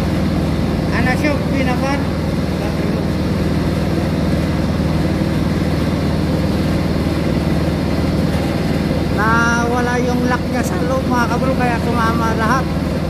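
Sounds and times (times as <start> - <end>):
machinery drone: 0.0 - 13.0
man talking: 0.9 - 3.1, 9.2 - 12.7.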